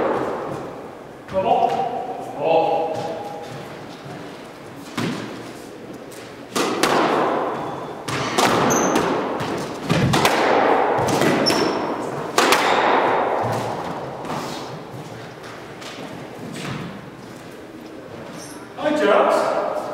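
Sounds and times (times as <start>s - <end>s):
sneakers squeaking on wooden floor: 2.8s - 5.4s, 7.5s - 10.1s, 11.0s - 12.2s, 13.4s - 18.8s
squash ball smacks echoing: 4.9s - 5.4s, 6.5s - 17.0s.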